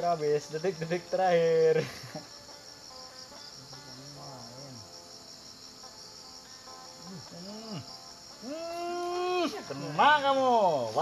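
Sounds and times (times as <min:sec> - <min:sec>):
crickets chirping: 0:00.0 - 0:11.0
man's voice: 0:08.8 - 0:11.0.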